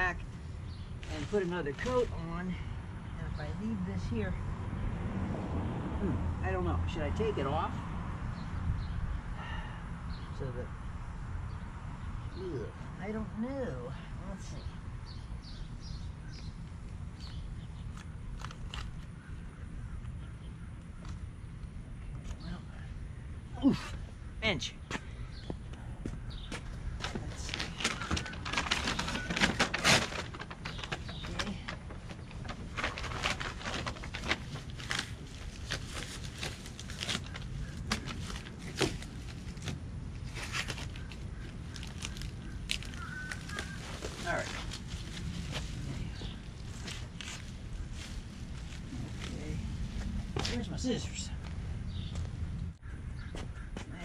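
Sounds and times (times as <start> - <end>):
paper crinkling and rustling: 27.0 - 49.3
tape being peeled off: 27.9 - 31.1
steady low rumble: 30.0 - 53.7.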